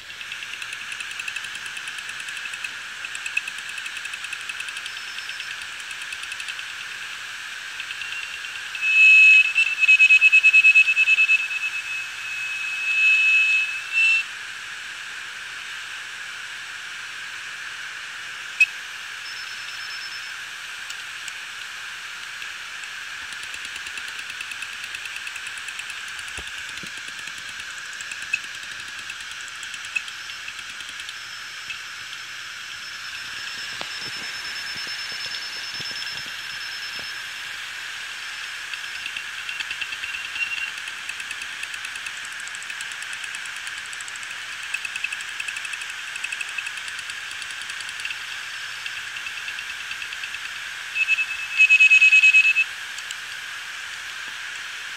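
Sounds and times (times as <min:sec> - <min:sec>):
hard drive platters whining: 0:00.0 - 0:14.3, 0:18.5 - 0:53.3
high-pitched pulsing squeal: 0:06.6 - 0:14.3, 0:18.6 - 0:20.5, 0:23.4 - 0:40.8, 0:48.9 - 0:52.7
sharp click: 0:20.9 - 0:32.2.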